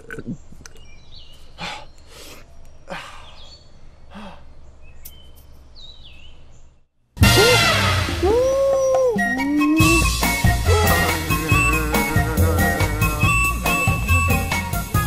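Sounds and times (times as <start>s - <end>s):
small birds chirping: 0.0s - 7.0s, 8.7s - 15.0s
loud music with gliding tones: 9.7s - 15.0s.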